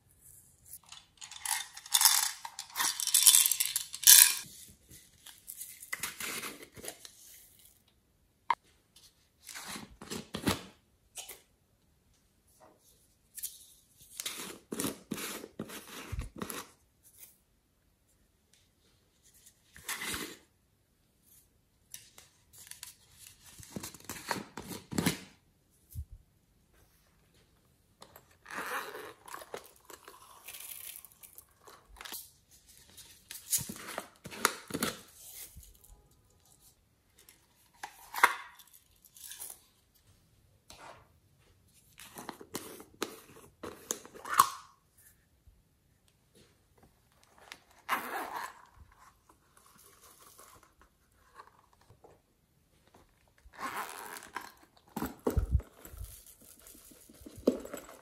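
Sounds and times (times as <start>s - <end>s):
plastic containers rustling and scraping: 54.5s - 58.0s.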